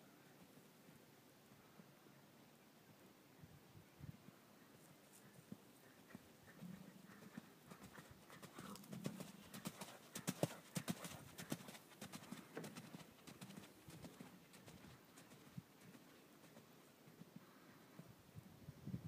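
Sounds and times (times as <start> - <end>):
horse hooves on dirt: 5.2 - 17.4.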